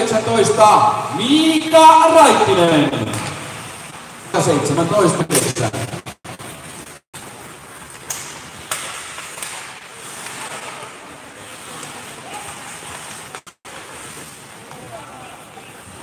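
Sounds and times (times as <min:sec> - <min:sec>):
skates hissing on ice: 0:06.3 - 0:16.0
stick hitting puck: 0:07.9 - 0:11.0.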